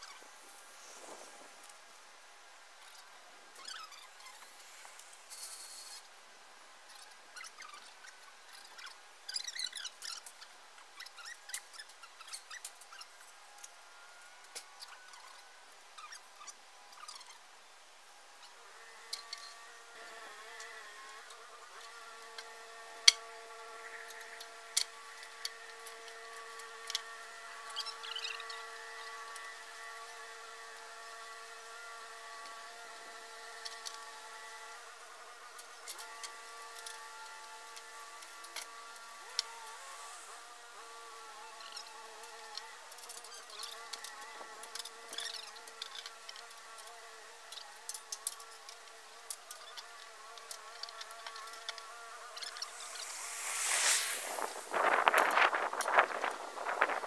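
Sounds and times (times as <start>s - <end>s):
buzzing hum: 16.7s - 57.0s
high-pitched hum: 52.4s - 56.9s.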